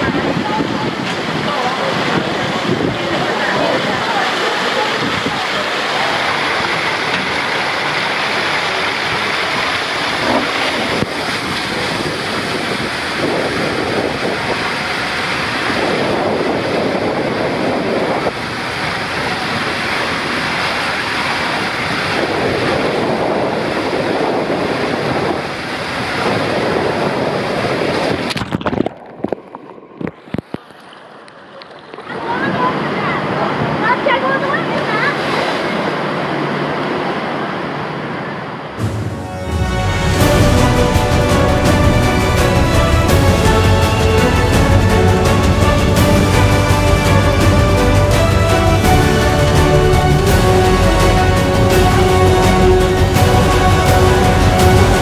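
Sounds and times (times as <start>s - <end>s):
splashdown into pool: 0.0s - 31.3s
water rushing down slide: 0.0s - 55.0s.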